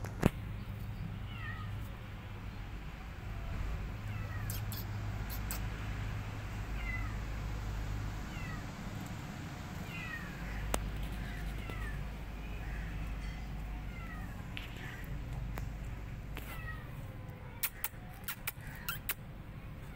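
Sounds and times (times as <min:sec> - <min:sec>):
kitten meowing: 0:04.0 - 0:05.6, 0:06.8 - 0:07.2, 0:09.8 - 0:12.8, 0:16.4 - 0:19.2.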